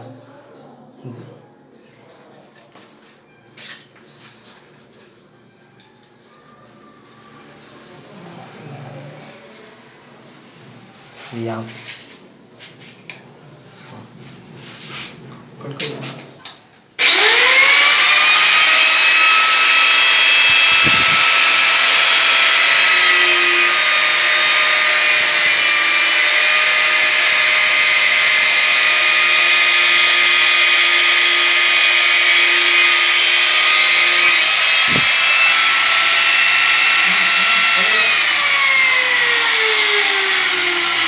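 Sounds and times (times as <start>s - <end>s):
angle grinder cutting metal pipe: 17.0s - 41.0s.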